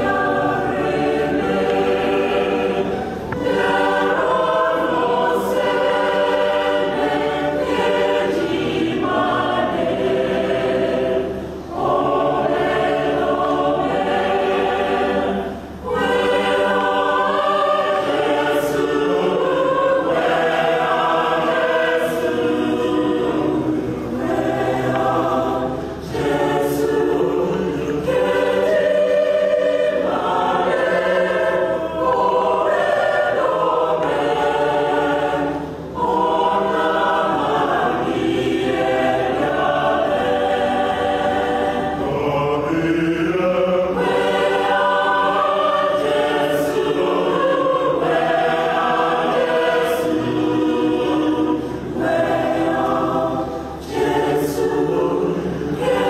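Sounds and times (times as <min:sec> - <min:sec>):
mixed choir singing: 0:00.0 - 0:56.0.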